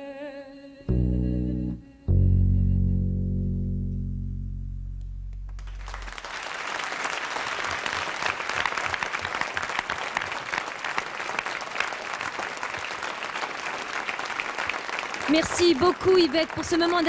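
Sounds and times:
low held chord: 0:00.9 - 0:06.2
audience applause: 0:05.5 - 0:17.0.

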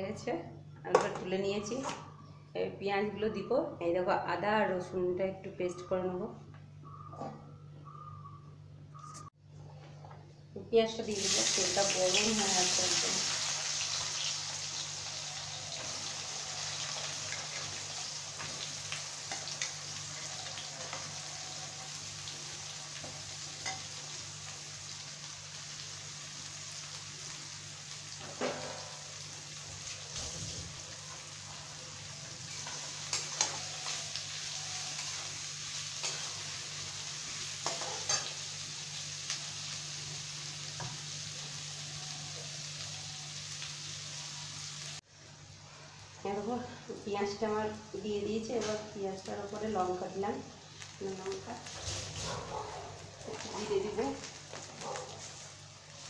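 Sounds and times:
onions sizzling in hot oil: 0:11.0 - 0:45.0, 0:46.0 - 0:52.3, 0:52.9 - 0:56.0.

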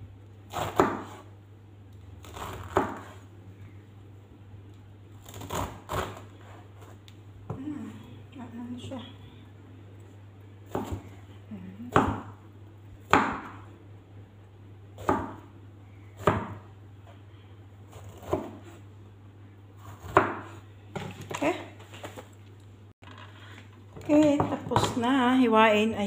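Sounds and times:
knife chopping on cutting board: 0:00.5 - 0:01.3, 0:02.2 - 0:03.2, 0:10.7 - 0:11.1, 0:13.1 - 0:13.6, 0:15.0 - 0:15.5, 0:16.2 - 0:16.7, 0:17.9 - 0:18.8, 0:19.8 - 0:20.6.

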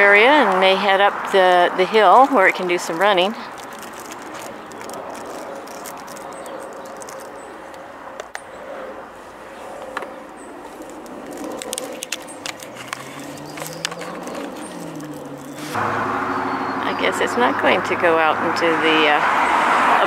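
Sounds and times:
distant traffic hum: 0:00.0 - 0:20.0
low engine drone: 0:06.6 - 0:20.0.

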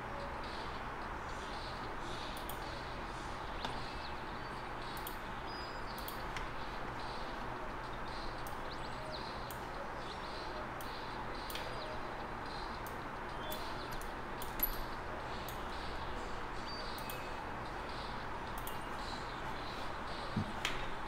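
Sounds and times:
computer mouse clicking: 0:04.9 - 0:05.2, 0:05.9 - 0:06.5, 0:10.8 - 0:11.9, 0:16.9 - 0:17.3, 0:18.5 - 0:18.8.

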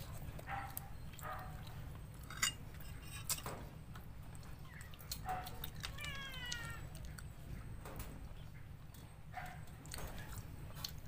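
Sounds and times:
cutlery clinking on plates: 0:02.2 - 0:03.6.

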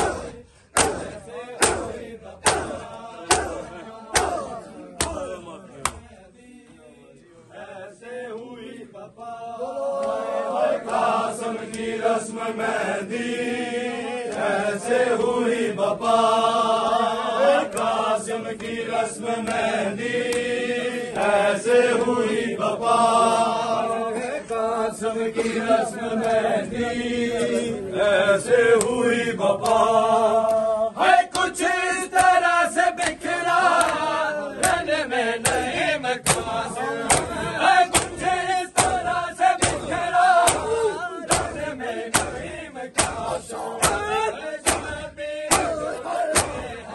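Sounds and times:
hands slapping bare chests: 0:00.0 - 0:06.1, 0:10.0 - 0:10.2, 0:10.8 - 0:11.9, 0:17.6 - 0:18.0, 0:19.4 - 0:20.6, 0:31.2 - 0:46.8
men chanting together: 0:00.0 - 0:46.9.

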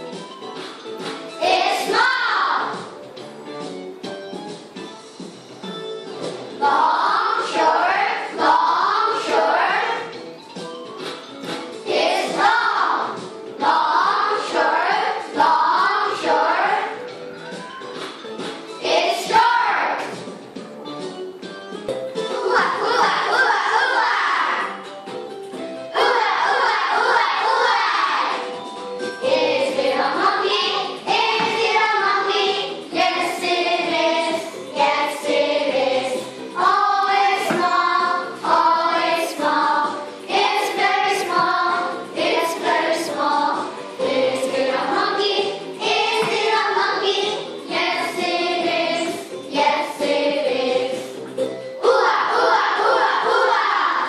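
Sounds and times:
children singing in chorus: 0:06.6 - 0:10.0, 0:11.9 - 0:16.9, 0:22.4 - 0:24.7, 0:26.0 - 0:28.4, 0:29.2 - 0:51.2, 0:51.8 - 0:54.0.

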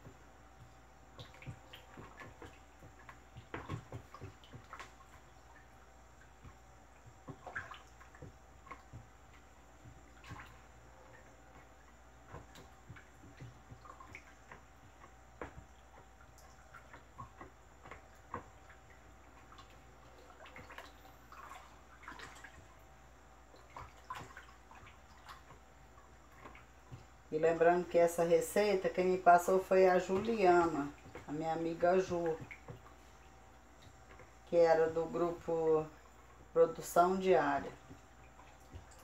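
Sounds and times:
liquid slopping in a bucket: 0:00.0 - 0:39.0.

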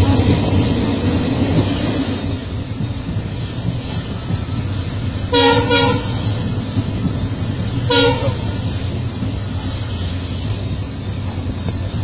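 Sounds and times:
train rumble inside coach: 0:00.0 - 0:12.0
train horn toots: 0:05.3 - 0:06.2, 0:07.9 - 0:08.6.

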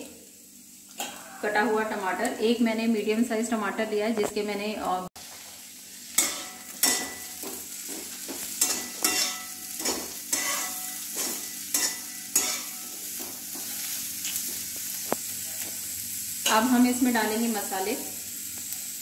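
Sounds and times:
vegetables sizzling in oil: 0:00.0 - 0:19.0
spatula scraping a metal pan: 0:08.6 - 0:12.8.

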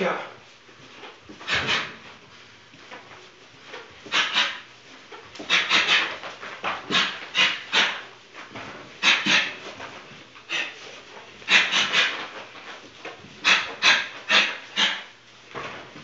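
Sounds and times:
man's sharp hissing breaths: 0:09.0 - 0:09.7, 0:11.5 - 0:12.2, 0:13.4 - 0:15.1.

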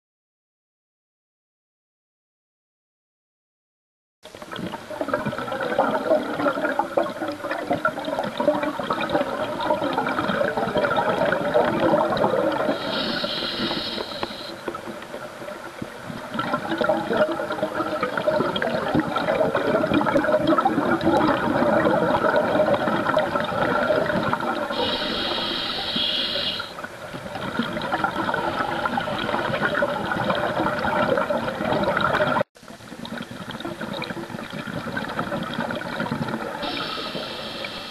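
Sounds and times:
regulator bubbles underwater: 0:04.3 - 0:37.9
hissing breath in: 0:12.7 - 0:14.5, 0:24.8 - 0:26.8, 0:36.6 - 0:37.9.

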